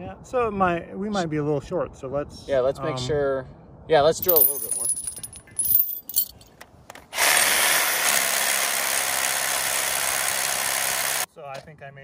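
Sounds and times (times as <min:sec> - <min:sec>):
metal gear clinking: 0:04.2 - 0:06.5.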